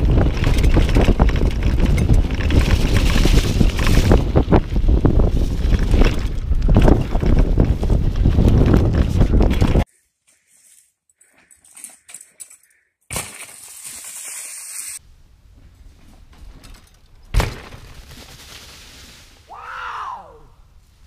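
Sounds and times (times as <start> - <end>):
bike tyres crackling through leaves: 0.0 - 9.8, 13.1 - 15.0, 17.4 - 19.9.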